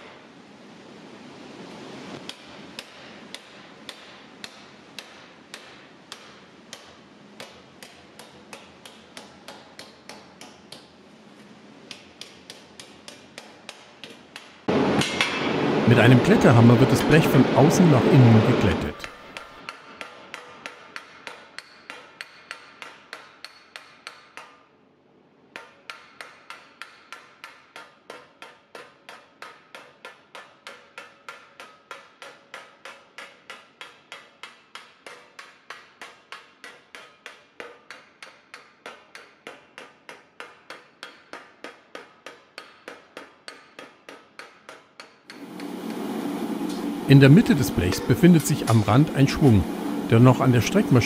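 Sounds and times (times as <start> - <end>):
loud steady noise: 14.7 - 19.5, 45.3 - 51.0
hammer striking sheet metal: 14.7 - 24.5, 45.3 - 51.0.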